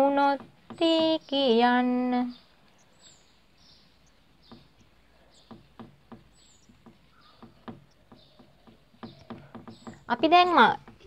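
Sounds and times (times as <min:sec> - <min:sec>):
thin high bird chirps: 0:00.8 - 0:10.8
marker tip tapping board: 0:05.5 - 0:11.0.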